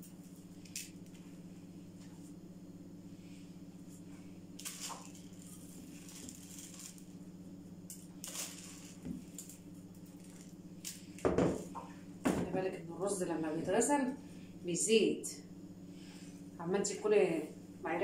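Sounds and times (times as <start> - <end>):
low hum: 0.0 - 18.0
rice grains rustling in bowl: 8.2 - 9.4.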